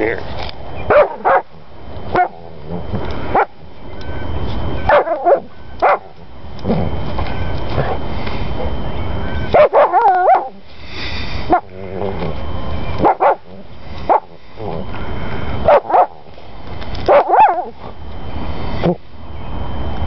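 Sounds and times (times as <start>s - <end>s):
dog yipping and whining barks: 0.9s - 1.5s, 2.1s - 2.4s, 4.9s - 6.1s, 9.5s - 10.6s, 15.7s - 16.2s, 17.1s - 17.7s.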